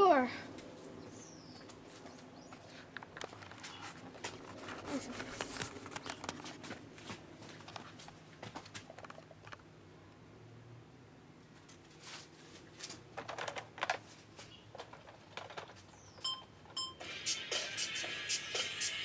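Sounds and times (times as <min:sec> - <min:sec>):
camera handling clicks and rustles: 0:02.8 - 0:06.7, 0:07.6 - 0:09.6.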